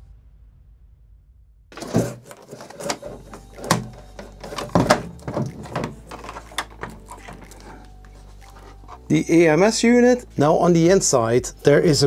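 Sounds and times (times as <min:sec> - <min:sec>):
glass panel knocks and clacks: 0:01.8 - 0:07.7.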